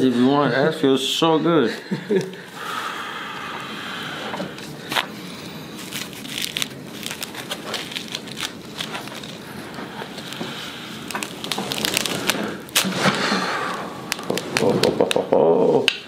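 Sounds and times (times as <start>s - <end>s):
scattered clicks and crackling pops: 14.1s - 15.3s.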